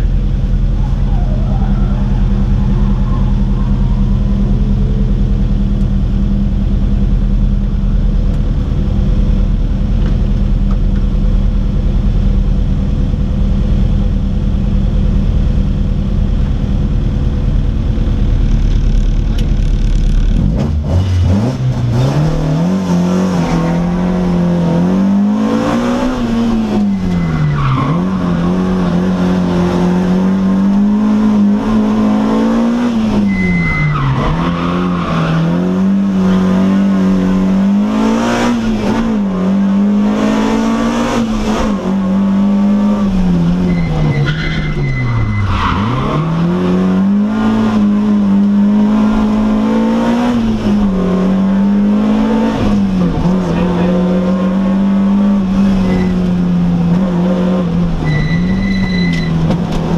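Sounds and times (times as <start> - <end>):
car engine idling: 0.0 - 20.6
car revving and driving off: 0.0 - 59.9.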